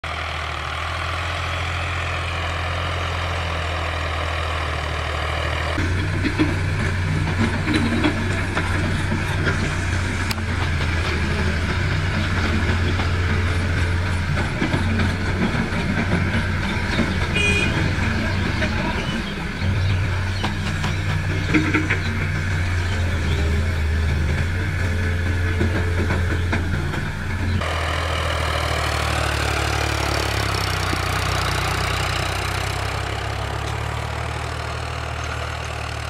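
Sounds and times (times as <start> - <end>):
excavator diesel engine running: 0.0 - 36.0
tractor diesel engine running: 0.0 - 36.0
digging clanks and knocks: 5.8 - 19.2, 20.3 - 27.6.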